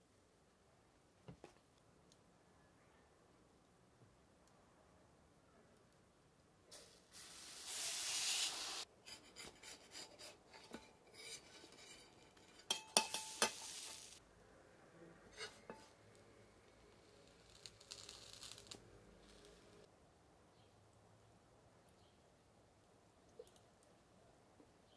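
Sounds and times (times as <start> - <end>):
bread sizzling on griddle: 6.8 - 8.9, 12.7 - 14.2, 17.3 - 19.7
metal spatulas scraping griddle: 7.6 - 14.2, 15.3 - 16.0.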